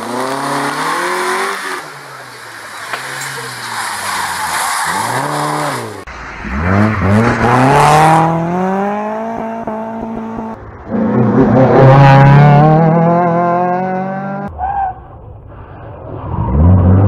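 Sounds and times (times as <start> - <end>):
car accelerating hard: 0.0 - 14.5
loud car engine: 0.0 - 17.0
rally car engine rising and falling: 0.0 - 17.0.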